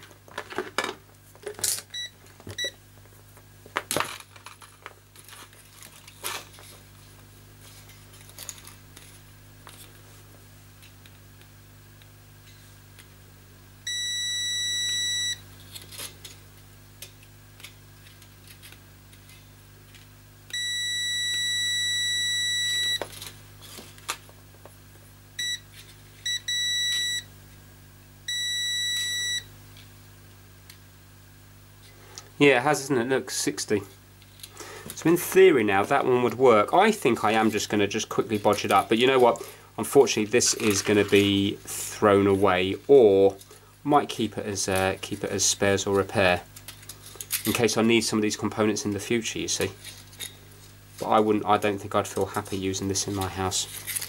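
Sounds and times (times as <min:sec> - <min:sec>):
multimeter beeps: 0:01.9 - 0:02.8, 0:13.9 - 0:15.4, 0:20.5 - 0:23.0, 0:25.4 - 0:27.3, 0:28.3 - 0:29.5.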